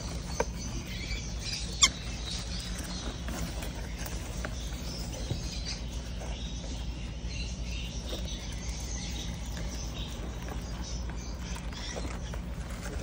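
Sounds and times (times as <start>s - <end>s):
bird chicks peeping: 0.0s - 13.0s
steady low hum: 0.0s - 13.0s.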